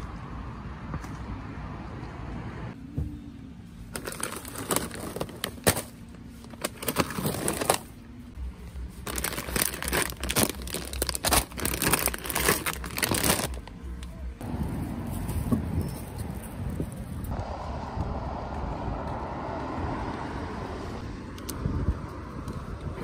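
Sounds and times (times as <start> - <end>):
plastic snack bags crackling: 3.9 - 7.9, 9.0 - 13.8.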